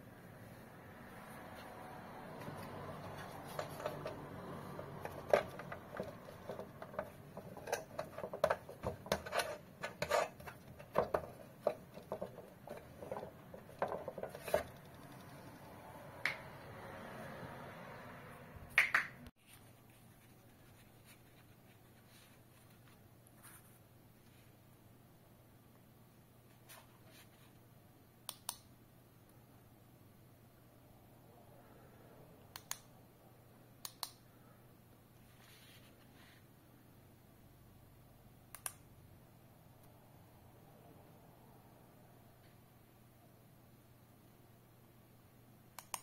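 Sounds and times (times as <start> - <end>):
hard plastic clicking and rubbing: 2.4 - 15.6.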